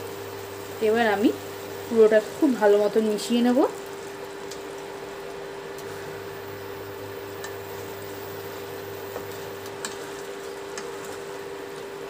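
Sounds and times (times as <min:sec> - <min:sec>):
steady hum: 0:00.0 - 0:12.0
spatula scraping in a pot: 0:09.1 - 0:11.9.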